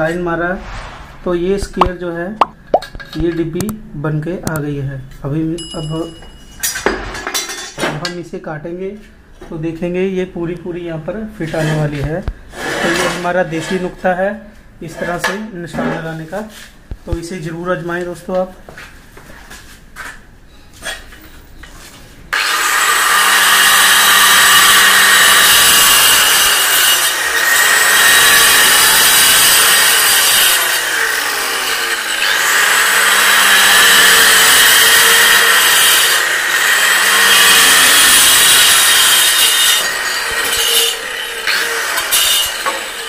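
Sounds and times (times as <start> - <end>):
electric tile cutter grinding tile: 22.3 - 43.0.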